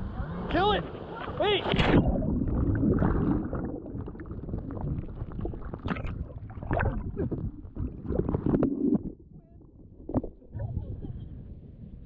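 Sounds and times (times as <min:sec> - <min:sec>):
underwater gurgling water: 0:01.7 - 0:10.8
small bubbles popping: 0:02.0 - 0:09.2.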